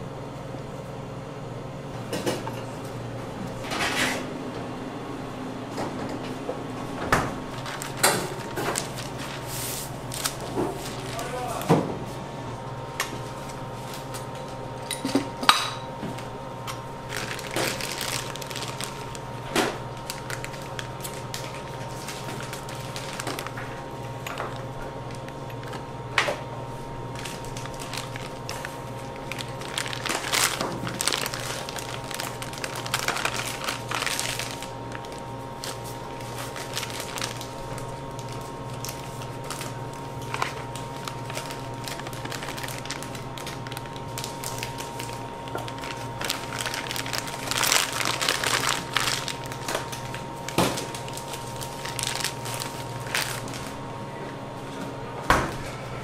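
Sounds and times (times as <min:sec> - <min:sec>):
steady hum: 0:00.0 - 0:56.0
plastic piping bag crinkling: 0:07.4 - 0:11.7, 0:16.2 - 0:26.1, 0:26.7 - 0:53.9.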